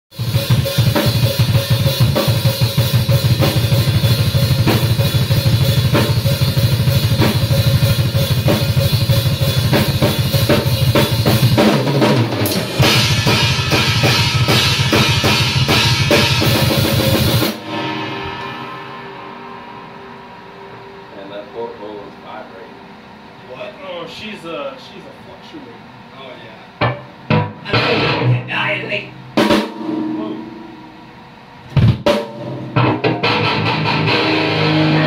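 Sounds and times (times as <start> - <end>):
rapid kick drum: 0.1 - 17.6, 31.7 - 33.4
metal band playing: 0.1 - 35.0
ringing after band stops: 12.5 - 22.1.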